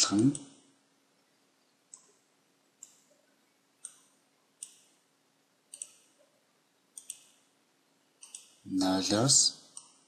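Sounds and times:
computer mouse buttons clicking: 1.9s - 2.2s, 2.8s - 3.2s, 3.8s - 5.0s, 5.7s - 6.3s, 7.0s - 7.5s, 8.2s - 8.6s, 9.7s - 10.0s.

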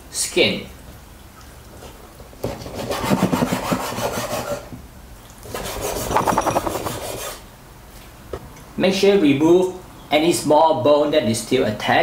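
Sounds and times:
knife sawing through raw chicken: 2.6s - 4.7s.

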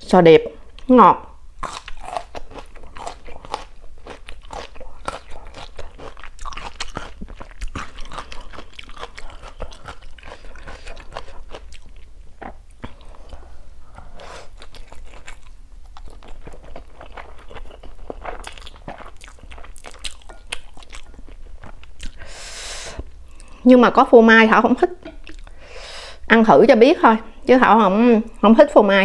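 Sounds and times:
chewing with wet mouth clicks: 1.6s - 13.3s, 14.0s - 22.2s.

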